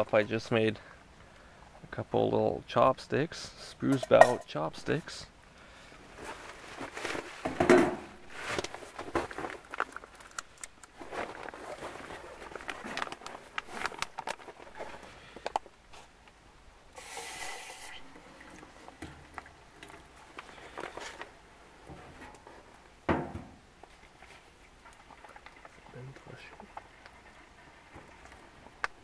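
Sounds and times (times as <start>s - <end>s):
foil pouch crinkling: 8.3s - 15.6s.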